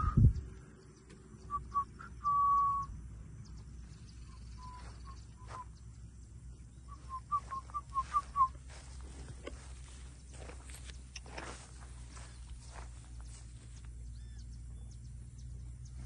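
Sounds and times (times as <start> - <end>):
whistled notes: 1.4 - 3.0, 4.2 - 5.7, 6.9 - 8.7.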